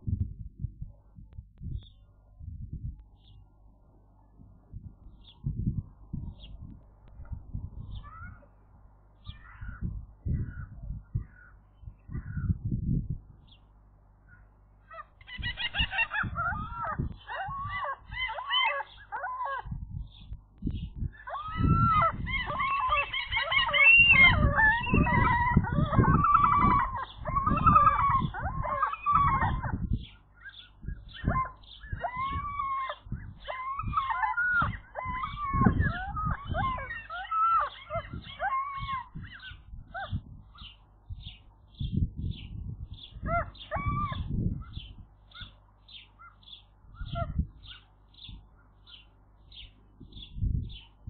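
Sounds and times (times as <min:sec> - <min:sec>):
low rumbling noise: 0:00.0 - 0:18.3, 0:19.6 - 0:37.1
small bird high chirps: 0:07.8 - 0:08.6, 0:09.2 - 0:12.6, 0:14.3 - 0:51.0
gulls mewing and chattering: 0:14.3 - 0:20.3, 0:20.9 - 0:41.4, 0:43.0 - 0:48.4.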